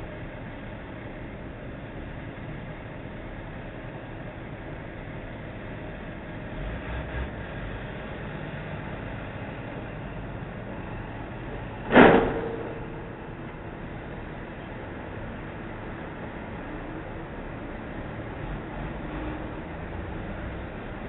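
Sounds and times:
steady traffic noise: 0.0 - 21.0
truck crashing into steel railing: 11.8 - 14.3.

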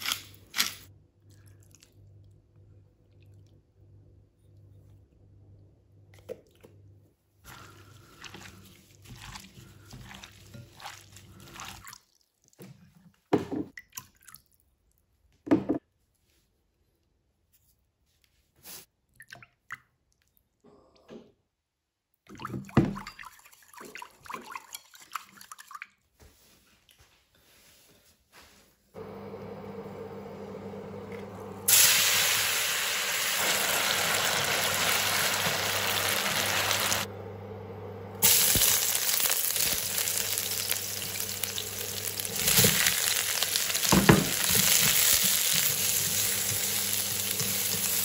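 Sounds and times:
wet mixing: 7.4 - 13.2, 38.2 - 48.0.

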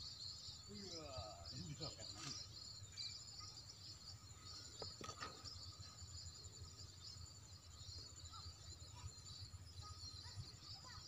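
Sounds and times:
insect chorus trilling: 0.0 - 11.0.

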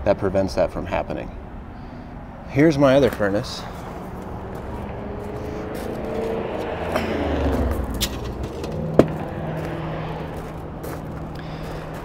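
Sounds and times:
vehicle passing by: 1.4 - 12.0
low hum: 3.6 - 12.0.

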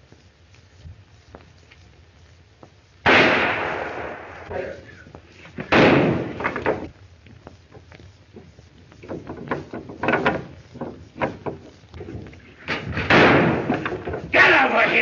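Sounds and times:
wooden knocks and rattles: 8.4 - 14.3.

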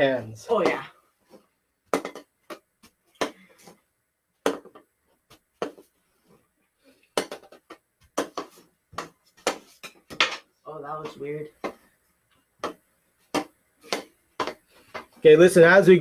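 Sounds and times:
hockey stick clacking plastic ball: 1.9 - 3.4, 4.4 - 5.9, 7.2 - 10.4, 12.6 - 15.2.

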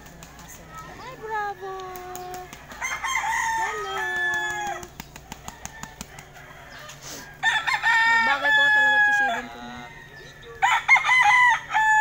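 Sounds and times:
rooster crowing: 2.7 - 12.0.

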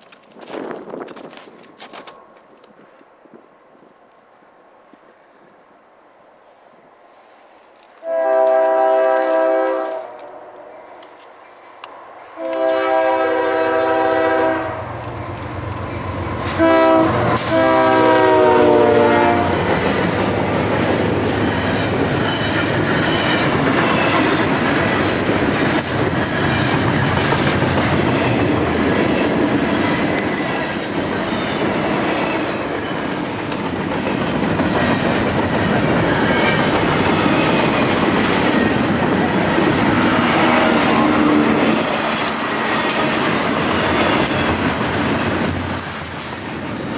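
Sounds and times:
locomotive air horn: 8.0 - 10.5, 12.3 - 14.9, 16.4 - 19.6, 40.1 - 42.0
train wheels clattering: 14.9 - 46.9.

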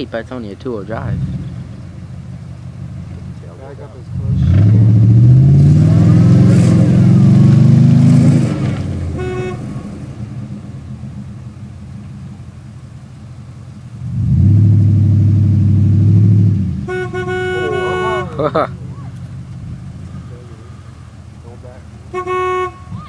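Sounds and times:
truck engine revving hard: 0.6 - 11.9, 14.0 - 23.0
short horn beep: 9.2 - 9.9, 16.9 - 18.5, 22.1 - 23.0.

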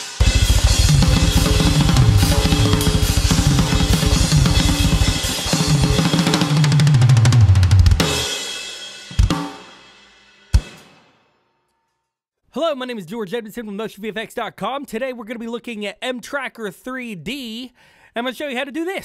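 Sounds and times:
cymbals ringing: 0.0 - 6.3
drum kit played fast: 0.0 - 11.2.

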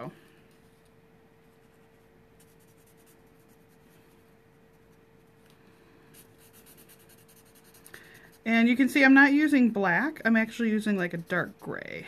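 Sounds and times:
faint hum: 0.0 - 12.0
marker strokes on paper: 0.5 - 5.4, 6.1 - 9.5.

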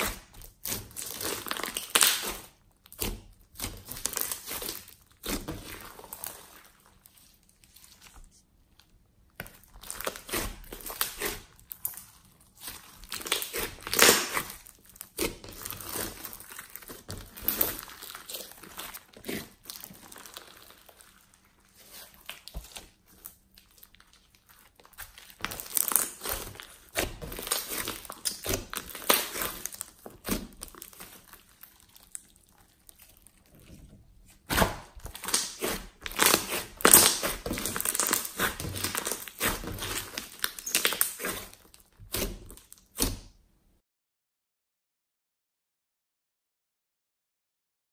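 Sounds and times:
slime clicking and crinkling: 0.0 - 43.2.

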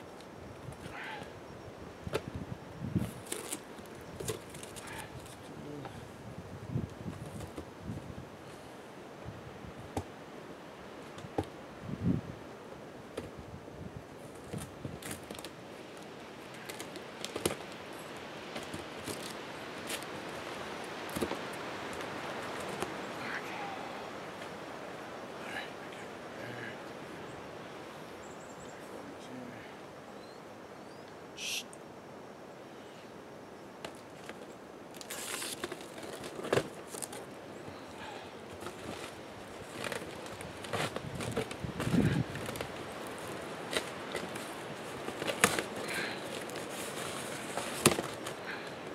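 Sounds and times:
steady hiss: 7.6 - 48.9
brief hiss: 31.4 - 31.7
cardboard flaps rustling: 35.0 - 37.3, 38.5 - 48.4
cardboard box rustling and tapping: 46.3 - 48.3.

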